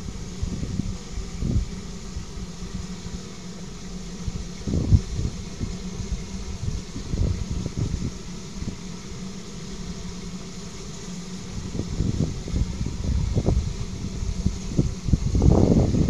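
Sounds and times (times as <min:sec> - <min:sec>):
wind buffeting microphone: 0:00.0 - 0:03.0, 0:04.2 - 0:09.1, 0:11.3 - 0:16.0.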